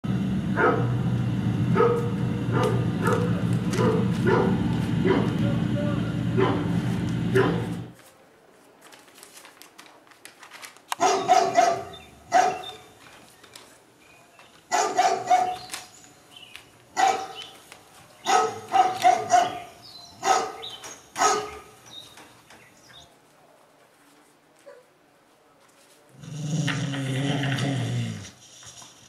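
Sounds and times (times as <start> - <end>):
dog barking: 0.6 - 1.0, 1.7 - 5.4, 6.4 - 7.8, 11.0 - 12.9, 14.7 - 15.7, 17.0 - 17.4, 18.2 - 21.8.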